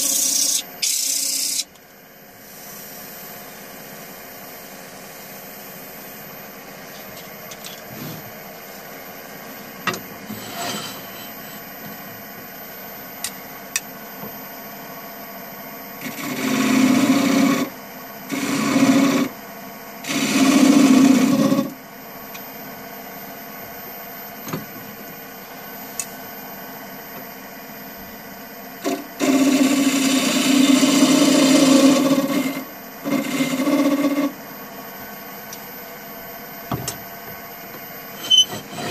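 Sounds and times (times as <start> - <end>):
tool scraping spinning wood: 10.2 - 11.8, 29.3 - 34.4, 38.1 - 38.9.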